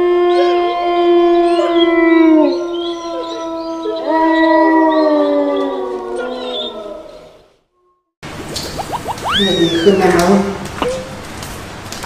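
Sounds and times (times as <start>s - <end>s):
wolves howling: 0.1s - 7.4s.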